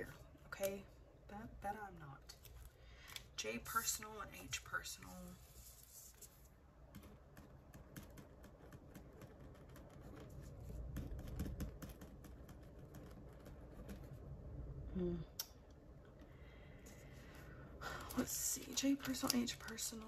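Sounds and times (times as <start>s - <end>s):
pen scratching on paper: 4.8s - 14.2s
hum of voice: 14.9s - 15.4s.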